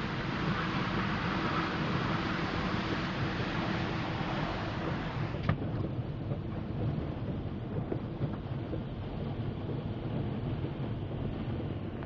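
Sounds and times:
water hissing against windshield: 0:00.0 - 0:06.6
tyres and engine rumbling through water: 0:00.0 - 0:08.5.

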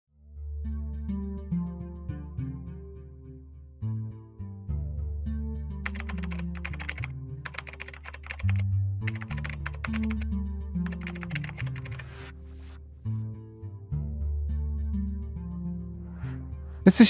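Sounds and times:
background music: 0:00.2 - 0:17.0
keyboard key clicks: 0:05.9 - 0:10.2, 0:10.9 - 0:12.0.

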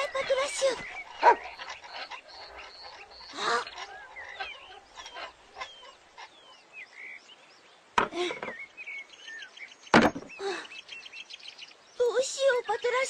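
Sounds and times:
birds chirping: 0:00.0 - 0:13.0
cart wheel wooden knock: 0:08.0 - 0:08.6, 0:10.0 - 0:10.3.

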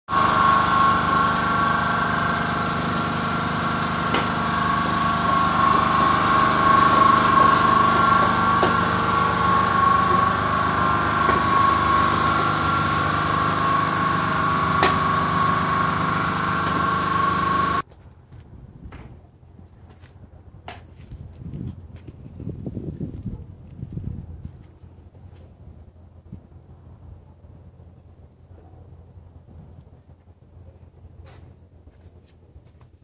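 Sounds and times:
motor drone with high whine: 0:00.1 - 0:17.8.

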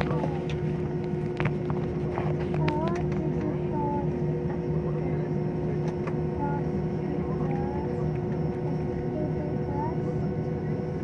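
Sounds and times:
jet engines humming in cabin: 0:00.0 - 0:11.0.

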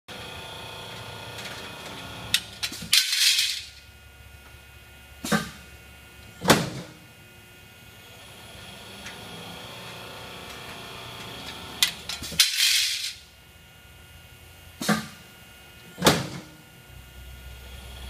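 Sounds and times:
rollformer machine whining: 0:00.1 - 0:03.8, 0:08.0 - 0:13.2.

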